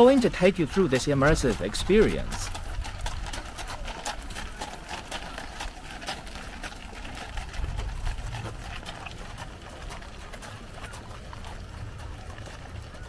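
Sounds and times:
horses' hooves clopping: 0.0s - 13.0s
wheels crunching on gravel: 0.0s - 13.0s.

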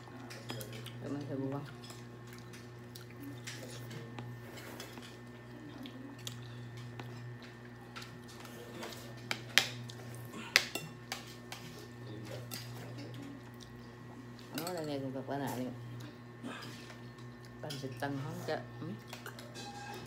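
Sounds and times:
steady low hum: 0.0s - 20.0s
spoons and forks clinking on bowls: 10.6s - 13.8s, 14.4s - 15.8s, 19.0s - 20.0s.

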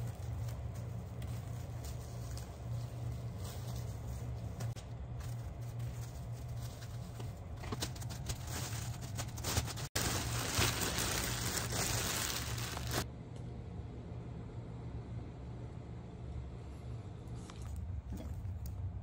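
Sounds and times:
plastic crinkling and rustling: 0.0s - 13.1s.

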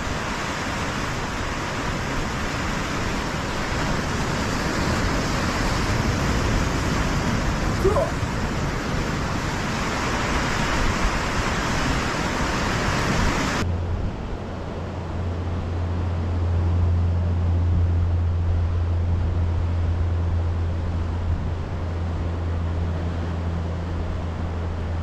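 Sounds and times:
surf washing over rocks: 0.0s - 18.2s
low rumble: 13.6s - 25.0s.

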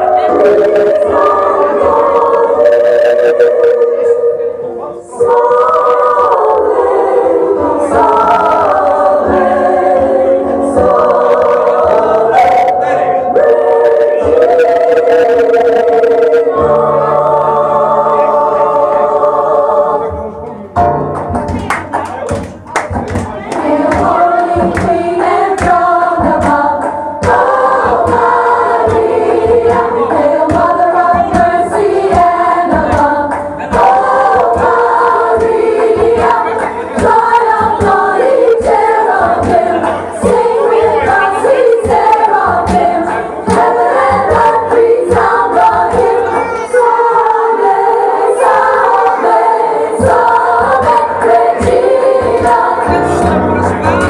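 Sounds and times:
women singing in chorus: 0.0s - 20.3s, 23.4s - 53.4s
musical accompaniment: 0.0s - 54.0s.

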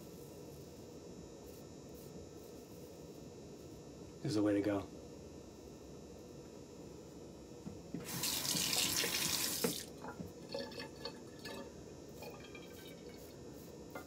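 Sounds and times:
water running from tap: 8.0s - 13.2s.

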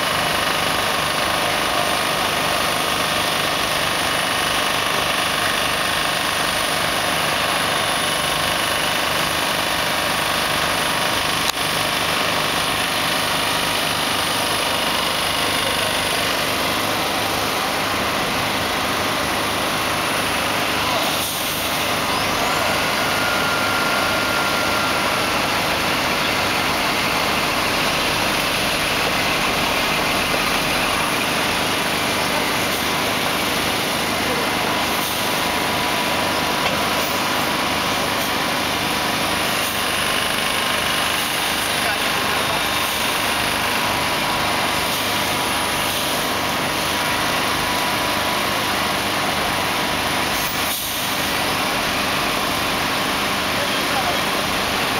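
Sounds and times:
truck diesel engine idling: 0.0s - 54.9s.

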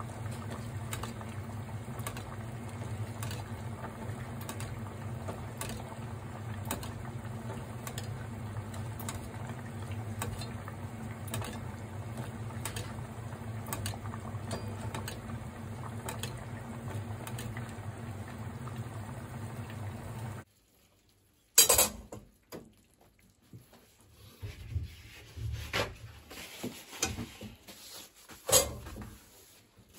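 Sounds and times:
pot bubbling: 0.0s - 25.1s
knocks and rubs: 24.3s - 29.3s.

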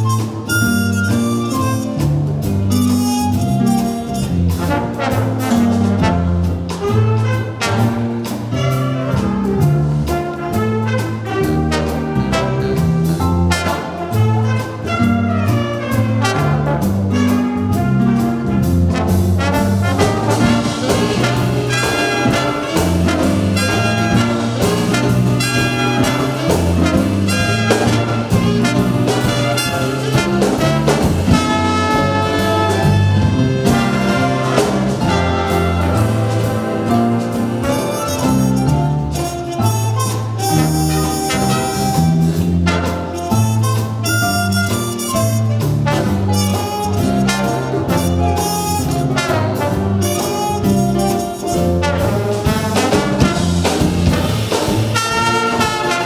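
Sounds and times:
jazz big band playing swing: 0.0s - 56.0s
trumpets and trombones: 2.7s - 56.0s.

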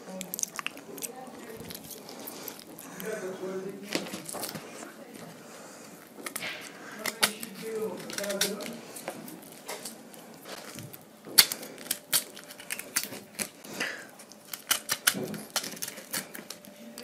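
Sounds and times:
knife cutting pineapple: 6.2s - 10.7s.

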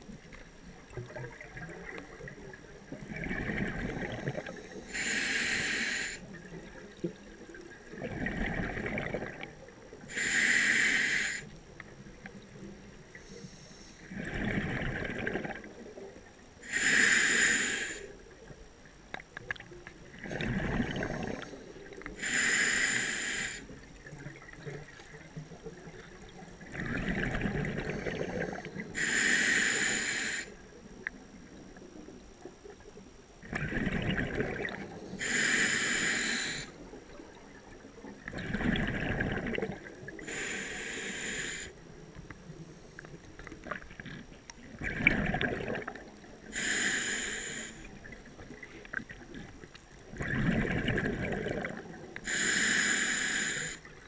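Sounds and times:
bubbling exhale underwater: 1.0s - 4.6s, 8.0s - 9.6s, 14.1s - 16.0s, 20.2s - 21.6s, 26.3s - 29.1s, 33.4s - 35.0s, 38.3s - 40.4s, 44.7s - 46.7s, 50.1s - 52.5s
hissing regulator inhale: 4.3s - 6.3s, 10.1s - 11.5s, 13.1s - 14.4s, 16.6s - 18.2s, 21.0s - 23.8s, 27.9s - 30.6s, 35.0s - 36.8s, 40.2s - 41.8s, 46.4s - 48.0s, 52.2s - 53.9s.

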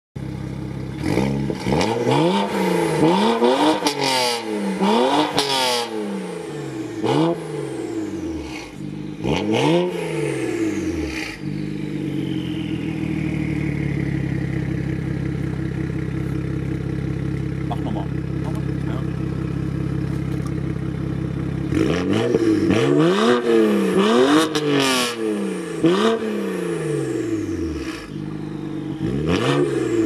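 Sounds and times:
car engine revving and idling: 0.2s - 30.0s
exhaust cracks: 10.7s - 25.0s.

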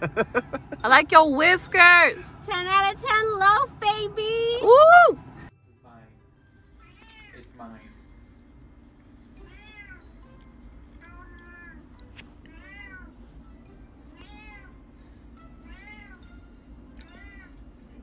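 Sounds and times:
cat meowing: 6.8s - 7.5s, 9.4s - 10.1s, 11.0s - 11.8s, 12.5s - 13.2s, 14.1s - 14.8s, 15.6s - 16.3s, 17.0s - 17.6s.

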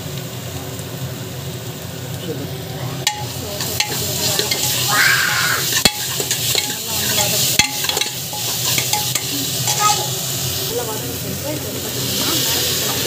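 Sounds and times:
onions sizzling in hot oil: 0.0s - 13.0s
steel ladle scraping a pan: 3.0s - 10.7s
ladle knocking against pan: 3.1s - 4.9s, 5.7s - 10.1s.

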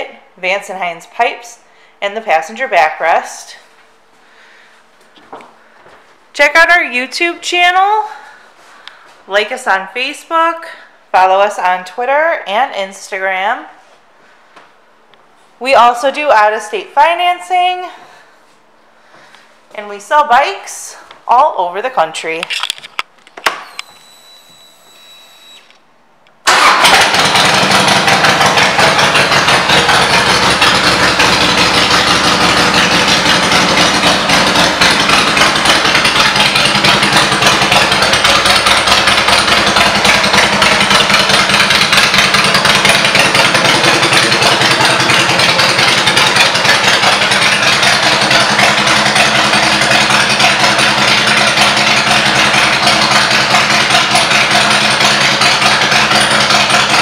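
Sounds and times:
motorcycle engine idling: 26.5s - 57.0s.

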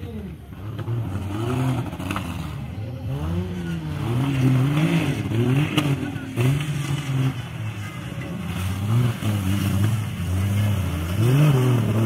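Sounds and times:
off-road engine revving: 0.0s - 12.0s.

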